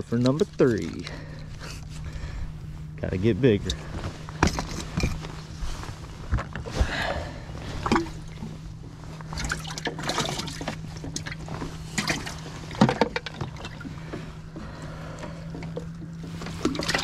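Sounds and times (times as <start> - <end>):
steady low hum: 0.0 - 17.0
water splashing and trickling: 9.2 - 17.0.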